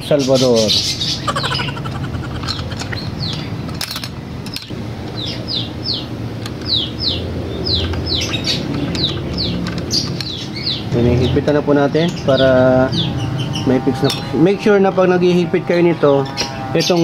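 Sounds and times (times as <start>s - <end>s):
small bird chirping: 0.3s - 3.7s, 4.6s - 11.4s.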